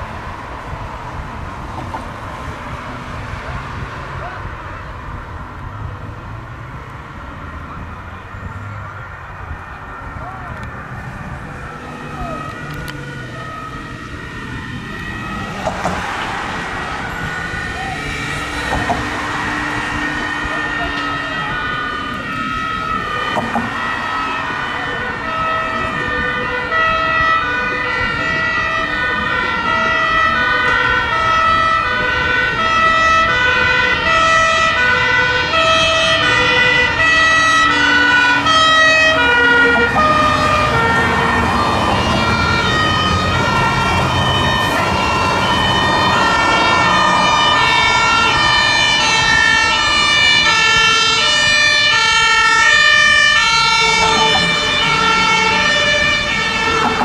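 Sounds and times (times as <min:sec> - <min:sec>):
heavy vehicle engines rumbling: 0:00.0 - 0:57.0
two-tone sirens: 0:00.0 - 0:57.0.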